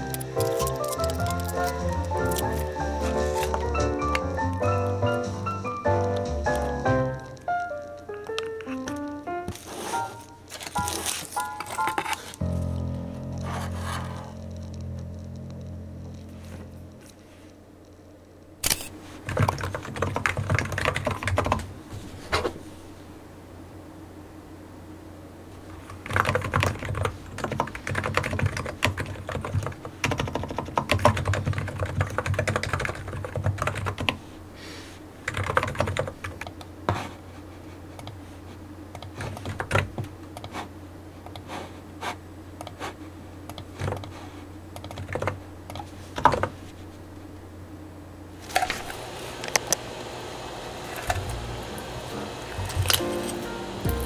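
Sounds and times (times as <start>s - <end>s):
steady low hum: 0.0s - 54.0s
typing on computer keyboard: 19.3s - 21.6s, 26.0s - 34.2s, 35.3s - 36.6s, 39.0s - 40.5s, 44.8s - 46.5s.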